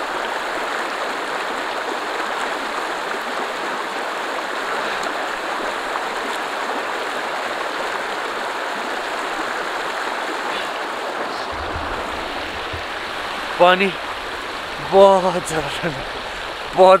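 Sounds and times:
stream rushing over stones: 0.0 - 17.0.

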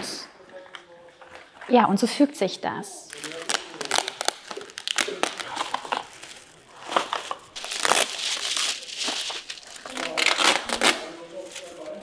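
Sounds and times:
bubble wrap crinkling: 3.0 - 12.0.

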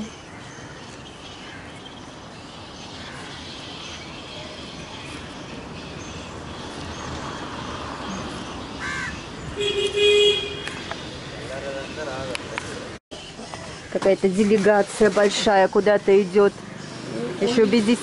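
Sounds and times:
outdoor background noise: 0.0 - 18.0
crows cawing: 8.7 - 9.3.

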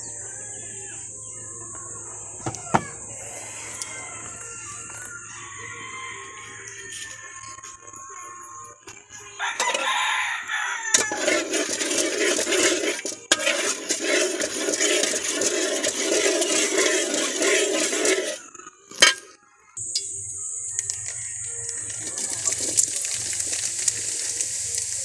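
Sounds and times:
rooster crowing and clucking: 2.4 - 19.3, 20.7 - 22.8.

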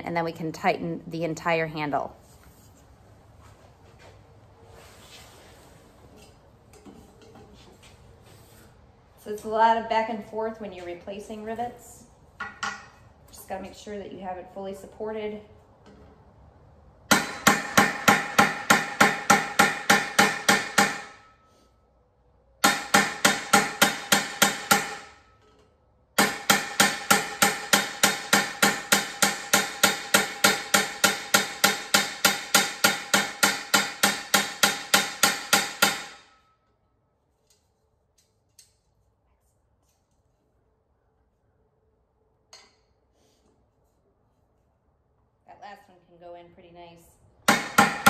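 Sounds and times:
hammer striking metal: 17.1 - 21.4, 22.6 - 25.3, 26.2 - 36.6, 47.5 - 48.0.

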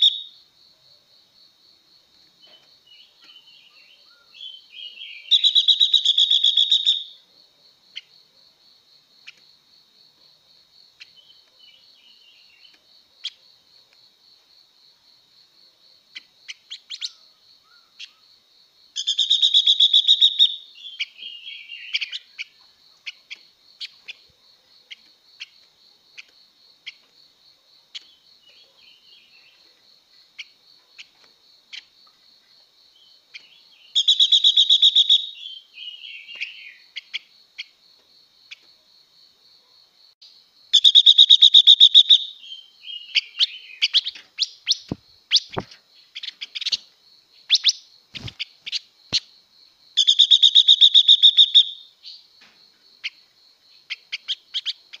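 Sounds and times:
bird chirps: 0.0 - 0.4, 2.4 - 7.2, 16.1 - 18.3, 19.0 - 24.3, 32.9 - 37.8, 40.7 - 49.3, 50.0 - 52.3
bird rapid trills: 47.5 - 49.2.

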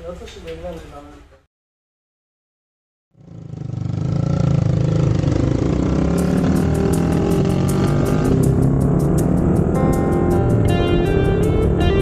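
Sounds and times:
motorcycle engine running: 3.2 - 12.0
music with ticking beat: 5.9 - 12.0.

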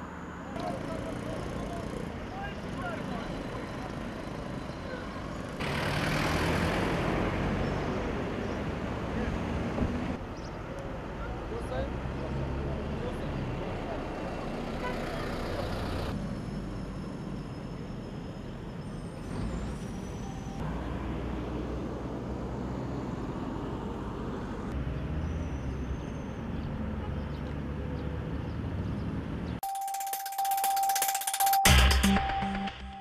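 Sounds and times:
highway traffic rumble: 0.0 - 29.6
news jingle held tone: 29.6 - 33.0.

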